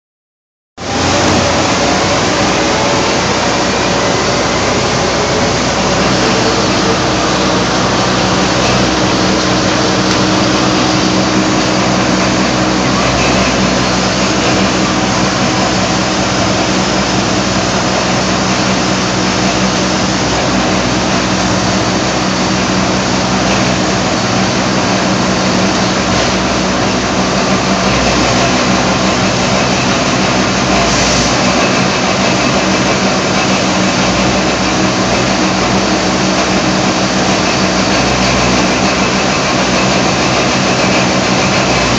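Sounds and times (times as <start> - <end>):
loud continuous machine noise: 0.8 - 41.9.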